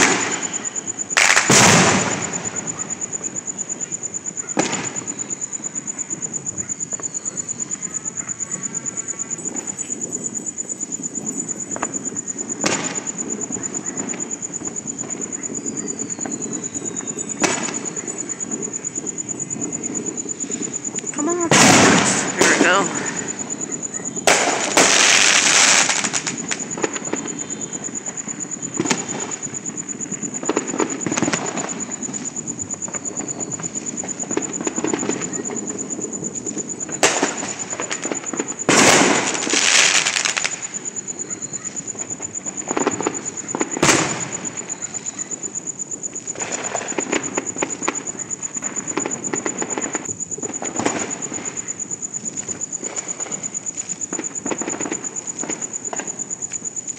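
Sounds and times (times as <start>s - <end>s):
sharp firecracker crack: 0.0s - 3.1s, 4.5s - 5.2s, 12.6s - 14.3s, 17.4s - 18.0s, 20.4s - 29.8s, 36.9s - 40.9s, 42.0s - 44.7s
continuous crackling: 0.0s - 56.9s
loud fireworks bursts: 0.0s - 56.9s
small firecracker pops: 1.2s - 2.6s, 4.5s - 5.0s, 21.5s - 23.1s, 24.2s - 27.3s, 37.0s - 40.6s, 42.7s - 44.4s.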